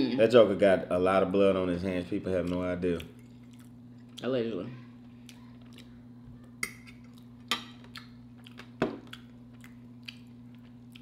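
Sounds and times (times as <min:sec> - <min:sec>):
steady low hum: 0:00.0 - 0:11.0
eating sounds: 0:04.9 - 0:11.0.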